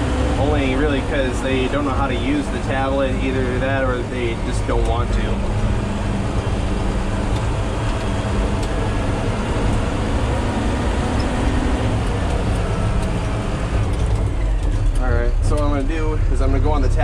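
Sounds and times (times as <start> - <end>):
truck engine running: 0.0 - 17.0.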